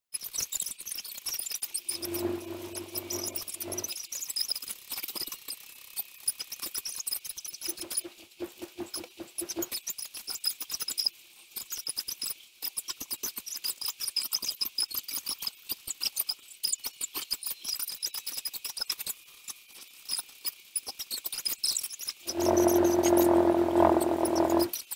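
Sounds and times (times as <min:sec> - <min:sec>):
rapid high-pitched squeaks and ticks: 0:01.9 - 0:03.9, 0:22.3 - 0:24.9.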